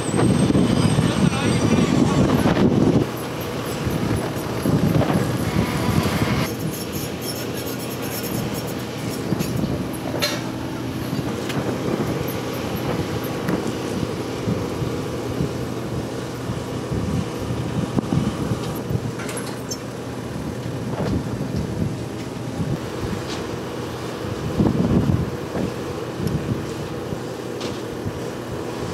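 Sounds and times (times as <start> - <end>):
cargo carts and boxes clattering: 0.0 - 14.1
engines droning: 0.0 - 28.9.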